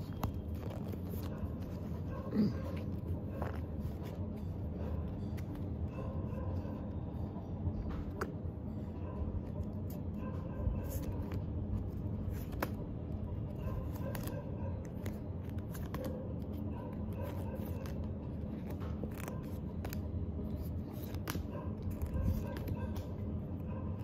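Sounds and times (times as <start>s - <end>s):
cards snapping and rustling: 0.0s - 4.2s, 10.8s - 13.0s, 13.7s - 23.4s.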